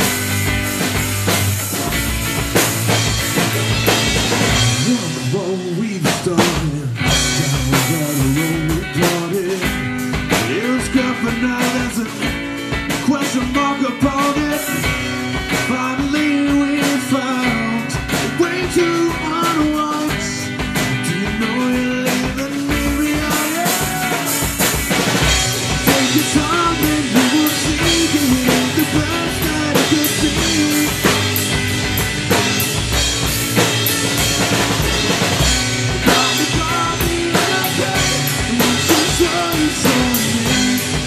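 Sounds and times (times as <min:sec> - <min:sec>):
drum kit beat: 0:00.0 - 0:41.0
rock guitar: 0:00.0 - 0:41.0
man singing: 0:04.5 - 0:24.8, 0:25.4 - 0:31.7, 0:35.9 - 0:41.0.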